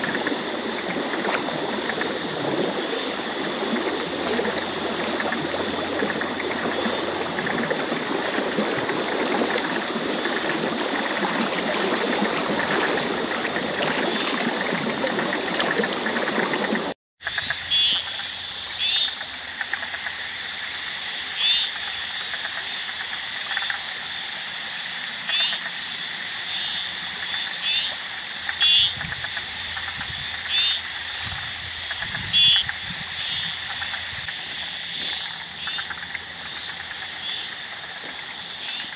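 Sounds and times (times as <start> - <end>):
floodwater rushing: 0.0 - 17.0, 17.7 - 38.9
frogs croaking: 0.0 - 38.9
high-pitched frog chorus: 0.0 - 38.9.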